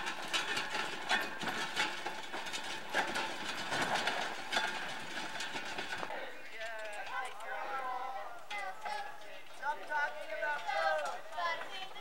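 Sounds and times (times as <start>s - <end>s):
handcart rattling over gravel: 0.0s - 7.1s.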